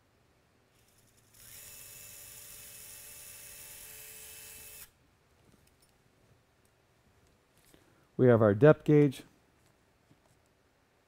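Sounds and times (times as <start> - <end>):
small power drill running: 0.8 - 5.0.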